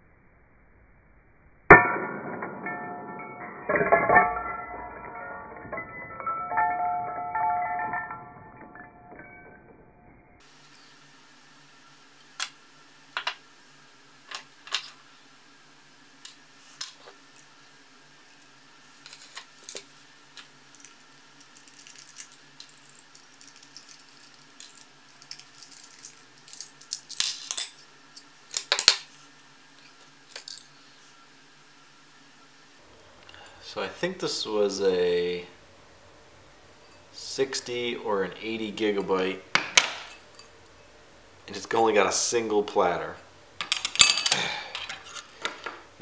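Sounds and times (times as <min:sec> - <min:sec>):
faint steady hum: 0:00.0 - 0:46.0
metal parts clicking and clinking: 0:03.6 - 0:08.8, 0:14.3 - 0:15.0, 0:19.0 - 0:29.1, 0:30.3 - 0:30.8, 0:43.6 - 0:45.8.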